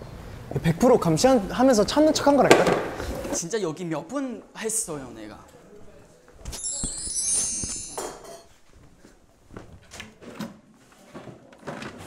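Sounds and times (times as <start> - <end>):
high twinkling chime: 6.5 - 8.4.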